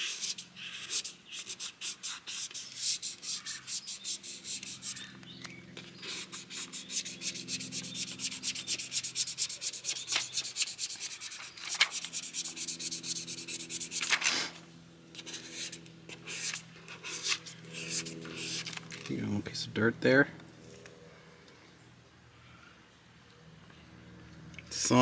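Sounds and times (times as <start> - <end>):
faint steady hum: 0.0 - 25.0
squeegee scratching plastic film: 15.2 - 19.1.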